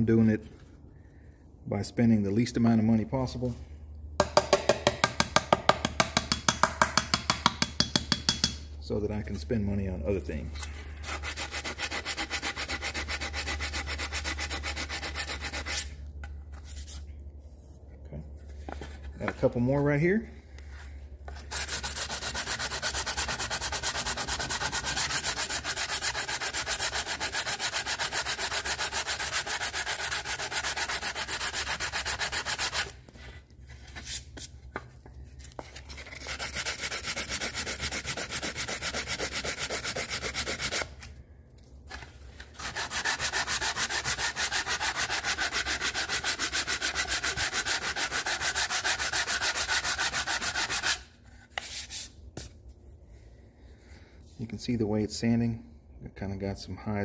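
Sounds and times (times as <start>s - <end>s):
sandpaper rasping on metal: 11.0s - 16.0s, 21.4s - 33.0s, 35.9s - 41.0s, 42.6s - 52.2s.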